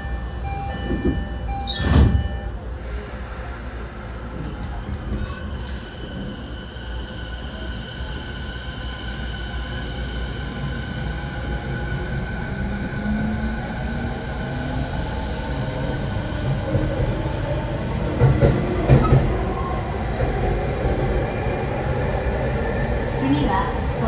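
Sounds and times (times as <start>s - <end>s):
electric train running rumble: 0.0s - 24.0s.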